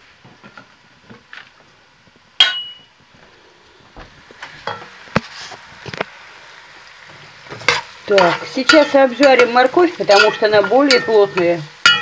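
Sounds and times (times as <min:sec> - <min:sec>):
sharp metallic clang: 0:02.4 - 0:02.9
carrots frying hiss: 0:03.1 - 0:12.0
metal cookware clinking: 0:07.5 - 0:12.0.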